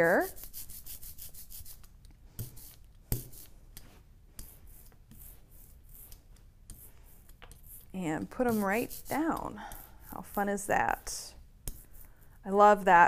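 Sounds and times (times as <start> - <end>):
rubber roller rubbing through ink: 2.4 - 11.1.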